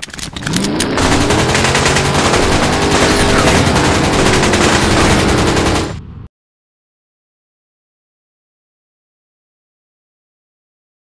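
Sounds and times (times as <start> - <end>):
rapid automatic gunfire: 0.6 - 6.0.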